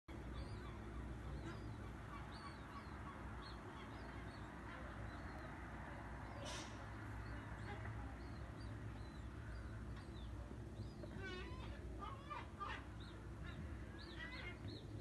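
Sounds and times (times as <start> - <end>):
low city hum: 0.1 - 15.0
brief hiss: 6.4 - 6.9.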